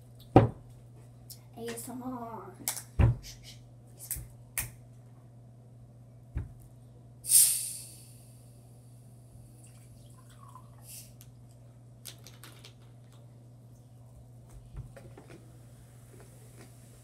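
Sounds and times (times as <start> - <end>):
low steady hum: 0.0 - 17.0
drink pouring into glass: 9.6 - 10.9.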